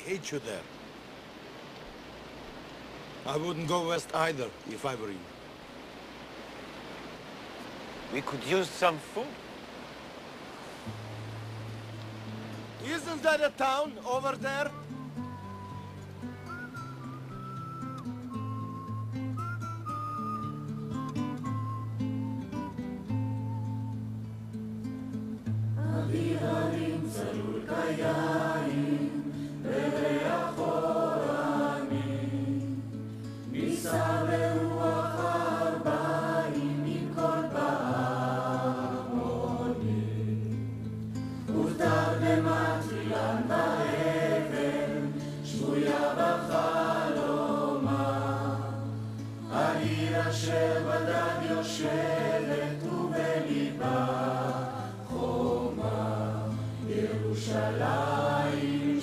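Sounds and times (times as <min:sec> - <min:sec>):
choir singing: 0:25.8 - 0:40.7, 0:41.5 - 0:59.0.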